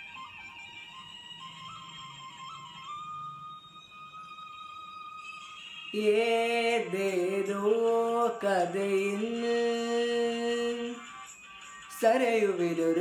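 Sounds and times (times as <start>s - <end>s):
boy singing long notes: 5.9s - 11.1s.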